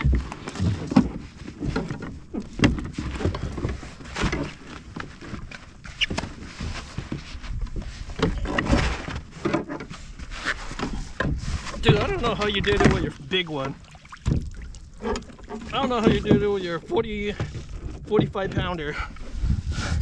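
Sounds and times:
fish and net knocking on kayak hull: 0:11.2 - 0:18.8.

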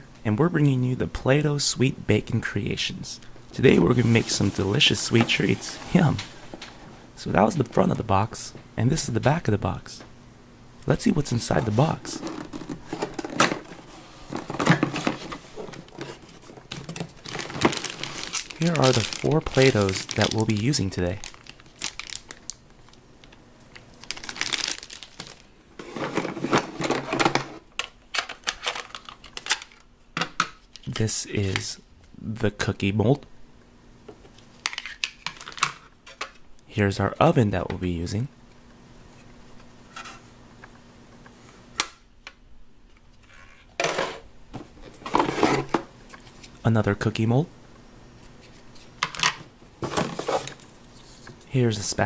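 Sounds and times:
plastic rustling and scraping: 0:03.7 - 0:07.0, 0:11.4 - 0:23.0, 0:23.9 - 0:27.6, 0:43.1 - 0:46.6, 0:48.2 - 0:51.5
plastic toy pieces clattering: 0:16.7 - 0:22.5, 0:28.1 - 0:29.8.

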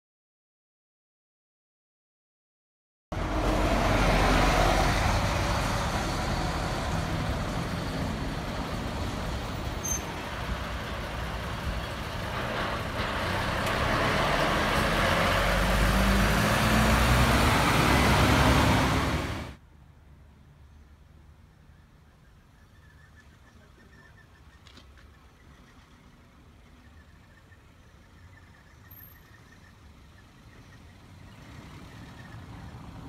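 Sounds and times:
heavy diesel vehicles passing: 0:03.1 - 0:33.0.

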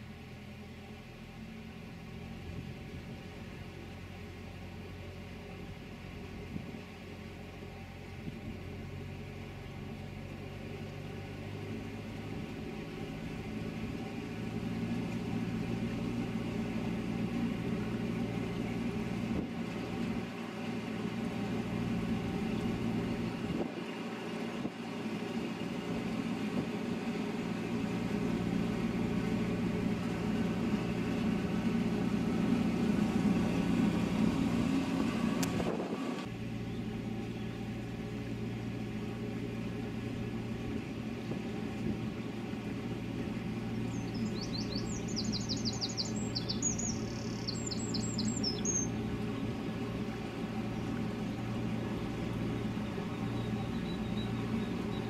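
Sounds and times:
boat engine running: 0:00.0 - 0:55.0
bird chirping: 0:43.7 - 0:49.5, 0:52.6 - 0:55.0.

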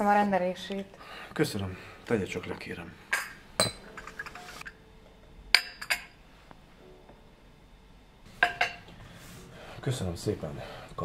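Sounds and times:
cup and saucer clinking: 0:03.1 - 0:04.8, 0:05.5 - 0:06.2, 0:08.4 - 0:08.9.

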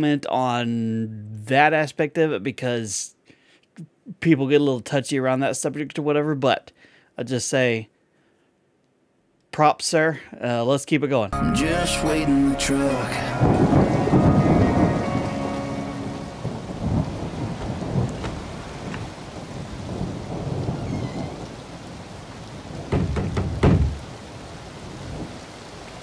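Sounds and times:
rain falling: 0:11.6 - 0:26.0
rolling thunder: 0:13.4 - 0:21.6.

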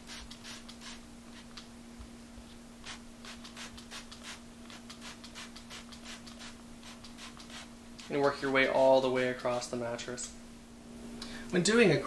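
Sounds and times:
spray bottle spritzes: 0:00.0 - 0:01.6, 0:02.8 - 0:08.2
steady low hum: 0:00.0 - 0:12.0.

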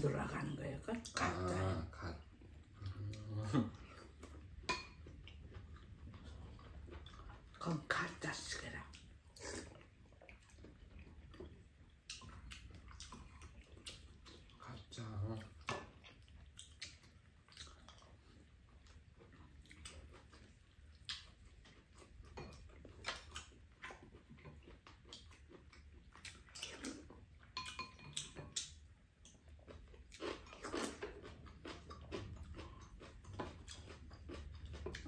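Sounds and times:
people chewing food: 0:00.0 - 0:35.0.

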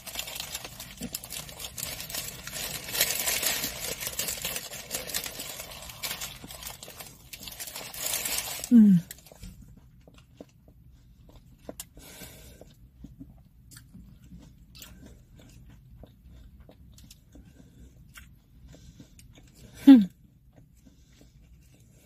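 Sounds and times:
person chewing crunchy food: 0:00.0 - 0:22.0.

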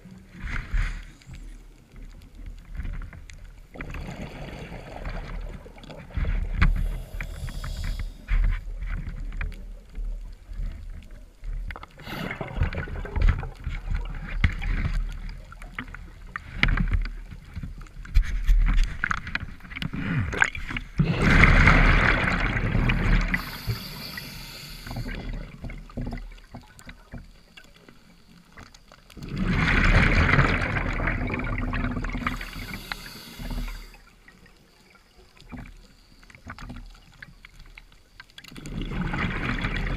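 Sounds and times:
exhaled bubbles rushing underwater: 0:03.6 - 0:08.3, 0:09.1 - 0:16.8, 0:19.8 - 0:27.2, 0:29.1 - 0:34.6, 0:38.5 - 0:39.9
short high hiss: 0:23.4 - 0:25.2, 0:32.3 - 0:34.0.

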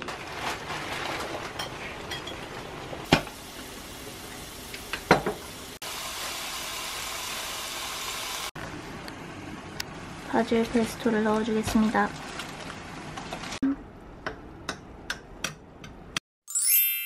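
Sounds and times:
water boiling in pan: 0:00.0 - 0:09.0, 0:09.6 - 0:13.6
food sizzling in oil: 0:01.9 - 0:08.6.

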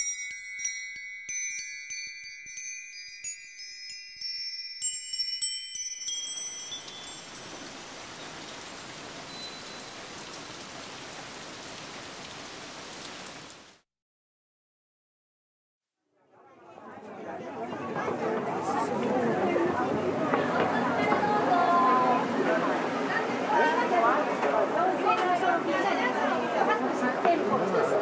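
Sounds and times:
high chime tones ringing: 0:00.0 - 0:08.5, 0:09.3 - 0:10.0
steady hiss: 0:06.3 - 0:13.5.

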